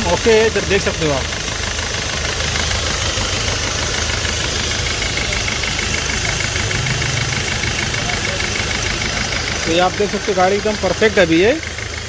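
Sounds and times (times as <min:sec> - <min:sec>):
diesel engine idling with ticking: 0:00.0 - 0:12.0.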